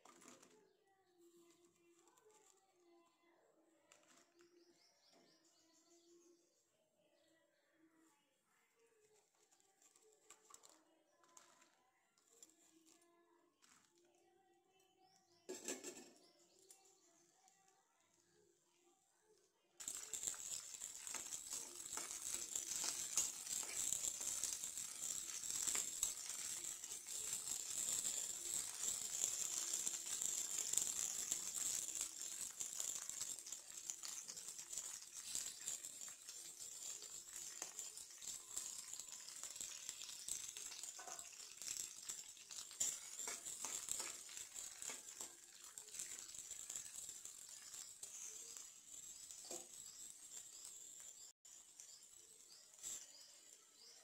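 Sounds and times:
chillies sizzling in oil: 15.4s - 17.2s, 19.8s - 54.0s.

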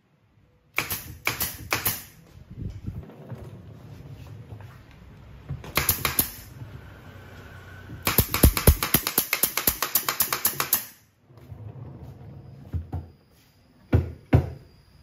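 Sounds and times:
pneumatic nail gun shots: 0.8s - 2.2s, 5.8s - 6.5s, 8.0s - 11.1s.

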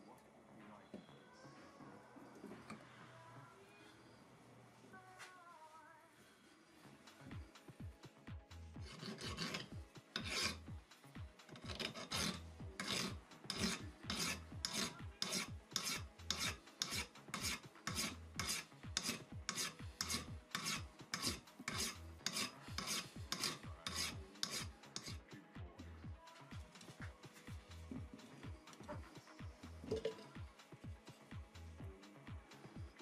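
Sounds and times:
hand file rasping on metal: 8.8s - 10.7s, 11.4s - 25.2s.

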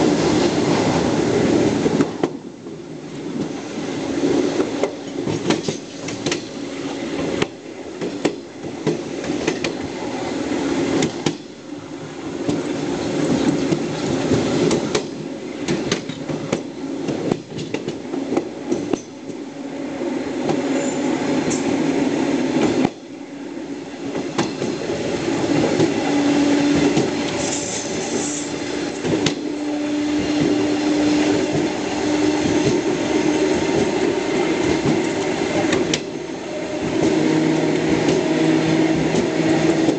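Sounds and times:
train rumble: 0.0s - 39.9s
train wheels clicking over rail joints: 4.3s - 10.1s, 10.9s - 11.6s, 12.4s - 19.5s, 24.0s - 36.2s, 36.8s - 39.9s.

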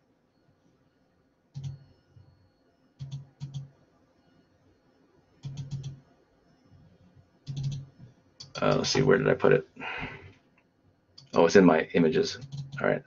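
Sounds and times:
computer mouse clicks: 1.5s - 1.9s, 3.0s - 3.7s, 5.4s - 6.0s, 7.4s - 8.9s, 12.4s - 12.9s.

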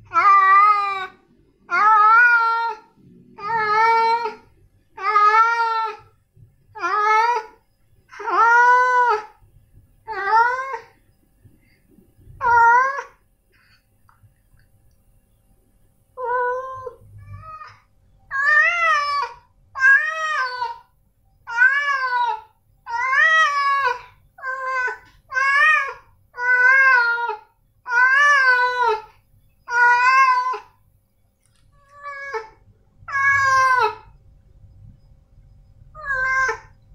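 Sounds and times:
cat meowing: 0.1s - 4.4s, 5.0s - 6.1s, 8.1s - 9.3s, 16.2s - 20.9s, 21.5s - 29.1s, 29.7s - 30.8s, 31.8s - 34.1s, 36.0s - 36.8s.

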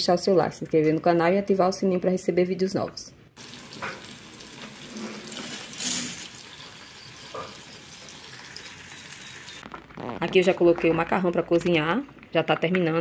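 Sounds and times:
pot of water hissing: 3.4s - 9.6s.

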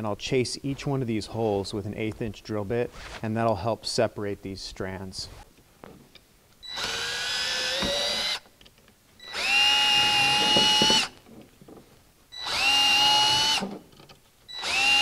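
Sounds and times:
cordless drill whining: 6.6s - 8.4s, 9.2s - 11.2s, 12.3s - 13.7s, 14.5s - 15.0s.

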